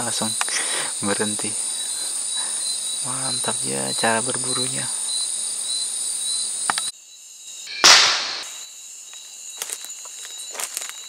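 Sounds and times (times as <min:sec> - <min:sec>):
insects chirring: 0:00.0 - 0:11.0
gunshot: 0:07.7 - 0:08.6.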